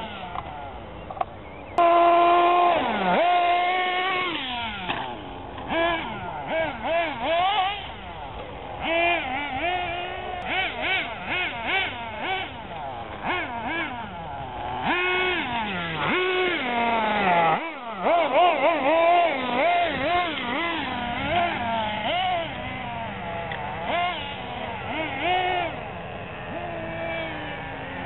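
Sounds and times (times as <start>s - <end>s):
rc car motors whining: 0.0s - 28.0s.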